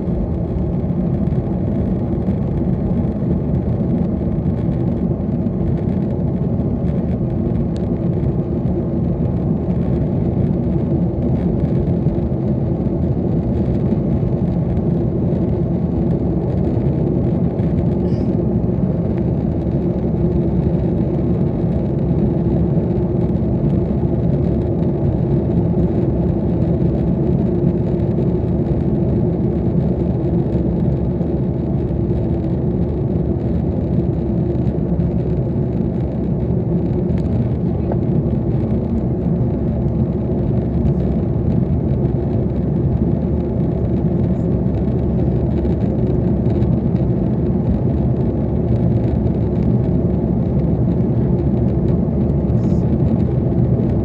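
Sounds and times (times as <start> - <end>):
jet engine rumble in cabin: 0.0 - 54.0.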